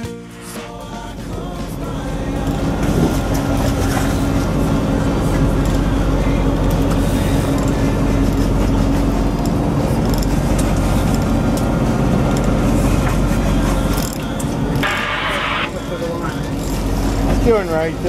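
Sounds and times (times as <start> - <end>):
boat engine droning: 0.0 - 18.0.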